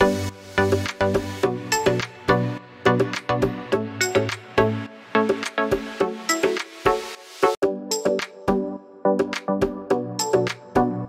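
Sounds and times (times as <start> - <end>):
rhythmic pitched background music: 0.0 - 11.0.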